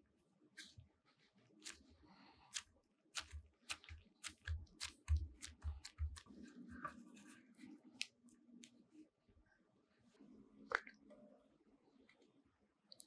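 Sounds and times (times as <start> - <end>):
hands patting a tortilla: 3.1 - 6.4.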